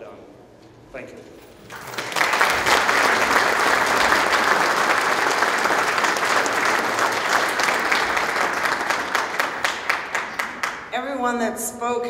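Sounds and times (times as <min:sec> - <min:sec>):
audience applauding: 0:01.6 - 0:11.0.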